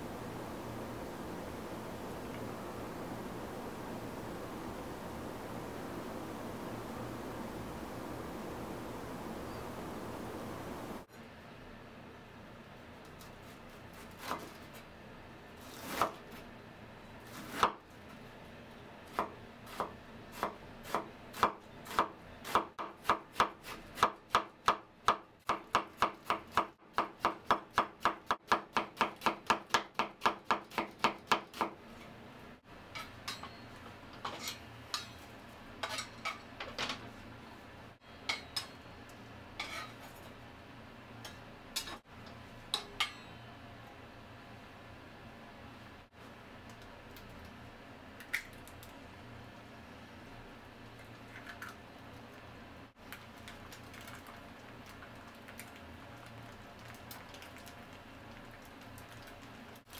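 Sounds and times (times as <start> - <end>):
metal spatula in frying pan: 32.9 - 36.5, 39.6 - 40.2.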